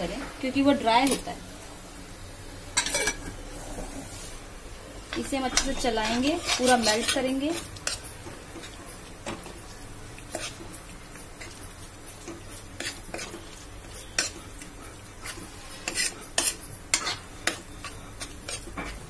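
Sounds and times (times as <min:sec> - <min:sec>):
metal spatula scraping metal pan: 0:05.2 - 0:08.1, 0:12.2 - 0:14.5, 0:15.2 - 0:19.0.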